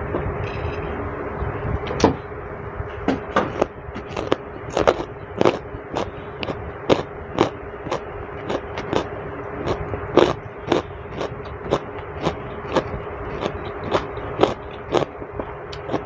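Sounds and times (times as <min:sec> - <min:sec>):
steady hum: 0:00.0 - 0:16.0
person chewing food: 0:03.5 - 0:16.0.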